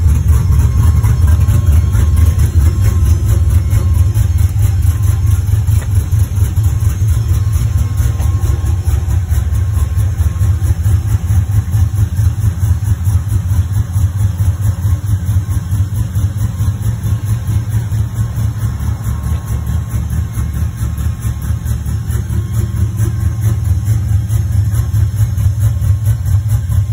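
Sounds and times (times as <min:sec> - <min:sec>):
car engine idling with deep exhaust: 0:00.0 - 0:26.9.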